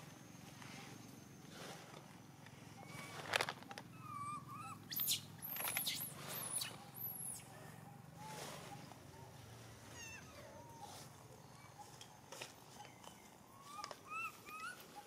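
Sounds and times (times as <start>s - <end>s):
baby monkey whimpering and squealing: 3.9s - 7.5s, 9.9s - 11.9s, 13.6s - 15.0s.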